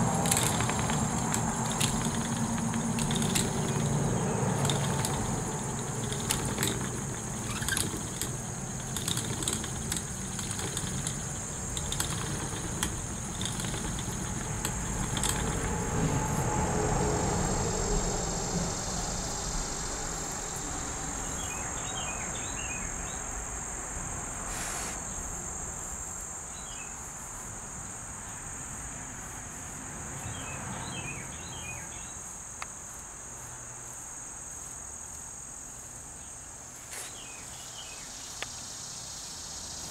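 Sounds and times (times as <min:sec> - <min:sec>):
spinning wheel rumbling and clicking: 0:00.0 - 0:16.7
high insect drone: 0:00.0 - 0:39.9.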